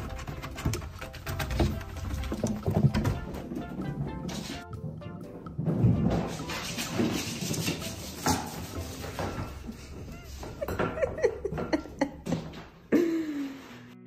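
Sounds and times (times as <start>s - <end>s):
background music: 0.0s - 14.0s.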